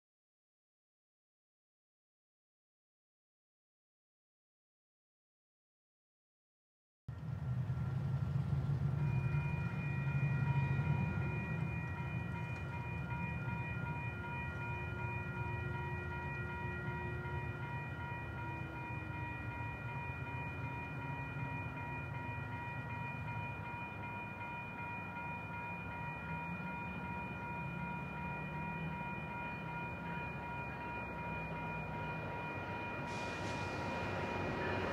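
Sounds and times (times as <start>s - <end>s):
train cars rumbling on rails: 7.1s - 34.9s
crossing bells ringing: 8.6s - 34.9s.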